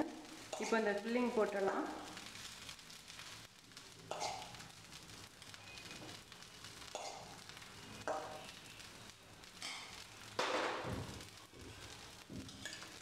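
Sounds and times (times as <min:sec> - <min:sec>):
faint sizzle: 0:00.0 - 0:13.0.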